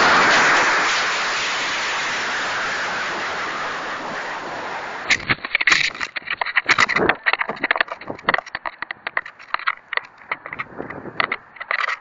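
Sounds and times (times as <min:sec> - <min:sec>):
rocket motor exhaust hiss: 0:00.0 - 0:05.4
crackles and clicks: 0:00.0 - 0:12.0.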